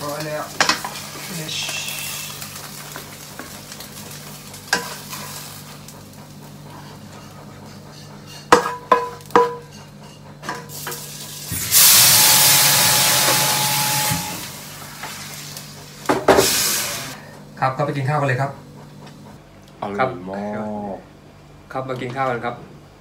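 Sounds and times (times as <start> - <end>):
hot pan hissing under tap: 0.0 - 5.7, 10.7 - 17.2
spatula knocking on metal pan: 8.5 - 9.8
pan ringing: 11.7 - 14.7.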